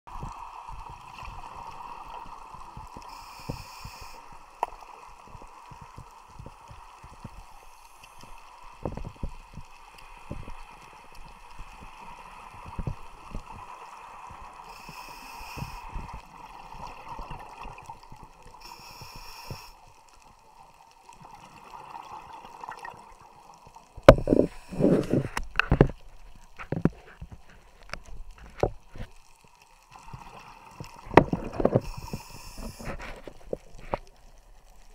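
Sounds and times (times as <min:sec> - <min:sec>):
steady underwater hum: 0:00.1 - 0:34.9
regulator inhale hisses: 0:03.0 - 0:04.6, 0:07.4 - 0:08.6, 0:14.6 - 0:16.2, 0:18.6 - 0:19.8, 0:24.1 - 0:25.4, 0:31.7 - 0:33.2.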